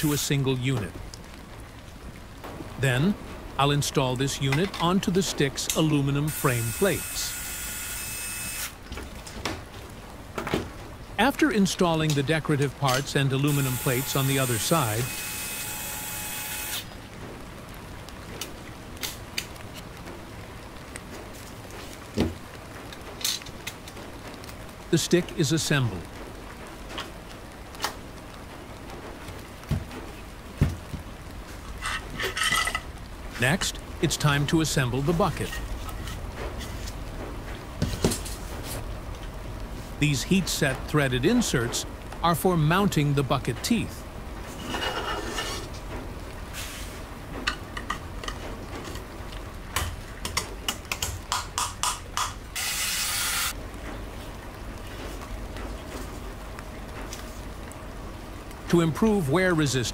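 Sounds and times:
faint hiss: 0:24.3 - 0:29.3, 0:46.4 - 0:47.2.

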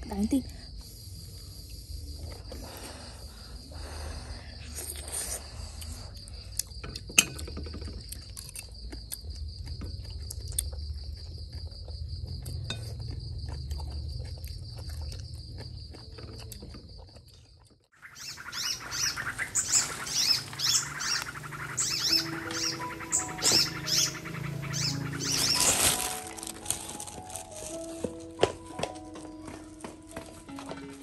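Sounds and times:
crickets trilling: 0:00.0 - 0:31.0.

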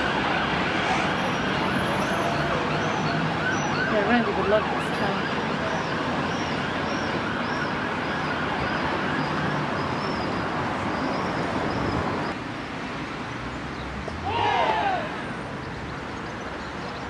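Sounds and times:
emergency vehicle siren: 0:00.0 - 0:12.3
street noise: 0:00.0 - 0:17.0.

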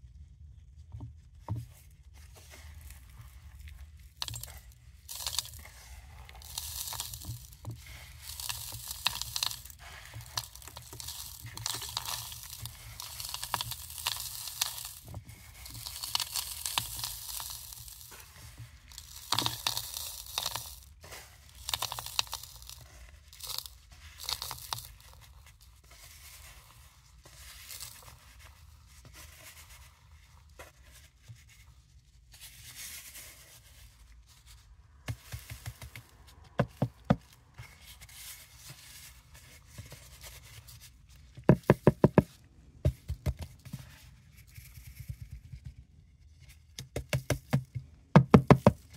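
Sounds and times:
powder pouring in plastic tub: 0:02.4 - 0:31.0, 0:35.1 - 0:40.6, 0:48.2 - 0:48.9.

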